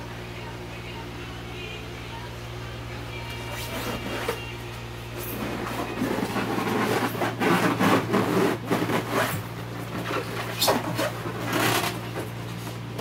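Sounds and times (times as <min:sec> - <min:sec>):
low hum: 0:00.0 - 0:13.0
foam squeaking against cardboard: 0:05.5 - 0:09.4.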